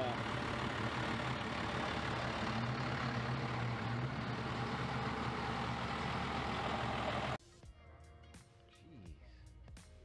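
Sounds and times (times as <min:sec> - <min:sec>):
vehicle engine idling: 0:00.0 - 0:07.4.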